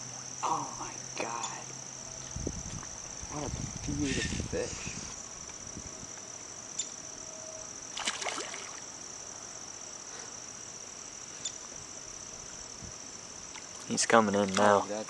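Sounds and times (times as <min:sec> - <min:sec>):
crickets chirping: 0:00.0 - 0:15.0
fish splashing in water: 0:07.9 - 0:08.9.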